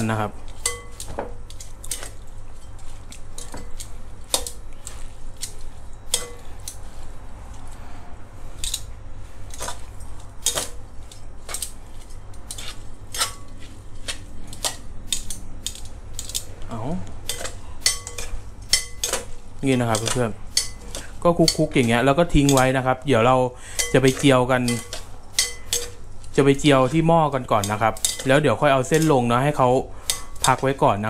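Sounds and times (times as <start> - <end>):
tongs clicking on glass bowl: 0.5 - 2.8, 17.3 - 22.8, 23.7 - 29.2.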